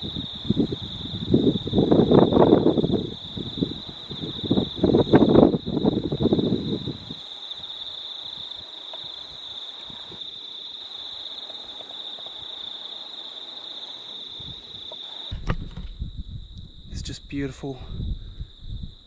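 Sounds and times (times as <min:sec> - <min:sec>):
high-pitched insect drone: 0:00.0 - 0:15.4
loud thump: 0:15.3 - 0:16.0.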